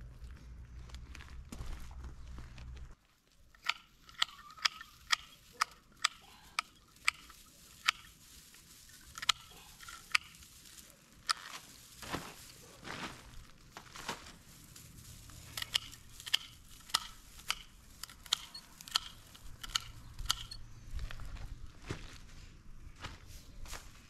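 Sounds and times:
foliage rustling: 0.8 - 22.4
pruning shears snipping stems: 3.5 - 8.2, 8.8 - 12.7, 15.1 - 20.6.

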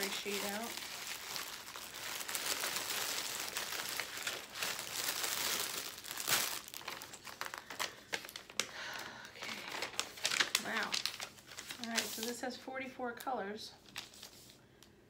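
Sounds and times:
paper sheet rustling: 0.0 - 8.6, 9.5 - 12.6, 13.8 - 14.6
plastic bag crinkling: 0.0 - 12.6.

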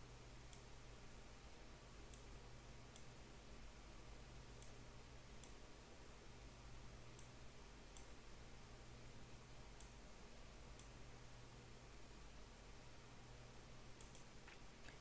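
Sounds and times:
low hum and hiss: 0.0 - 15.0
computer mouse clicks: 5.4 - 5.6, 7.2 - 8.2, 9.8 - 10.0, 14.0 - 15.0.

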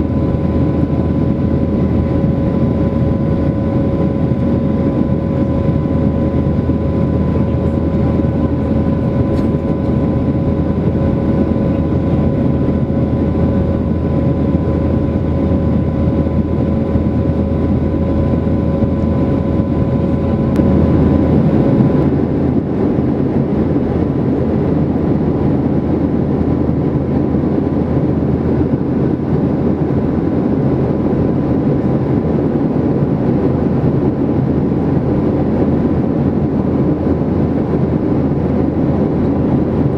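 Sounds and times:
air rushing past cabin: 0.0 - 30.6
jet engines droning: 0.0 - 39.9
steady engine whine: 0.0 - 39.9.

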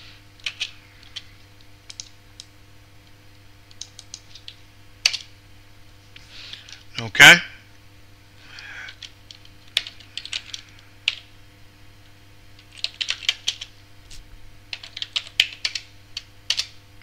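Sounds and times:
faint electrical hum: 0.0 - 17.0
computer keyboard typing: 0.4 - 1.3, 1.9 - 2.5, 3.7 - 5.3, 8.5 - 11.3, 12.6 - 13.7, 14.7 - 16.8.

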